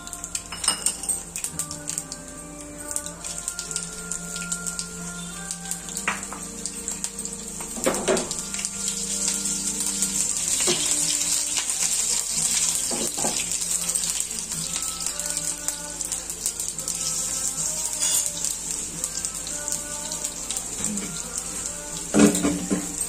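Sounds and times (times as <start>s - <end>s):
chillies sizzling in hot oil: 0.0s - 23.0s
oil popping: 2.8s - 17.9s.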